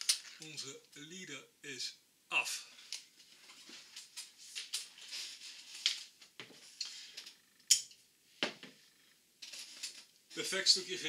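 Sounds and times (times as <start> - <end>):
rustles and light clicks: 2.9 - 7.4.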